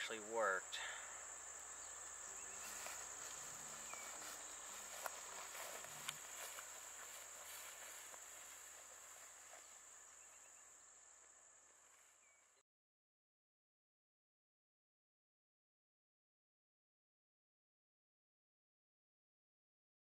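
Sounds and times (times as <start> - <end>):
insects droning: 0.0 - 12.6.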